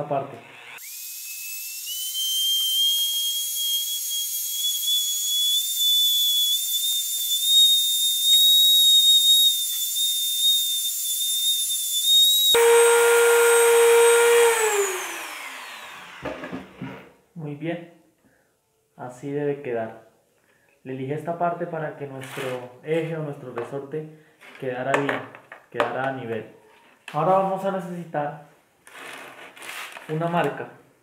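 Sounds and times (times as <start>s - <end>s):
rotary tool grinding metal: 0.4s - 16.2s.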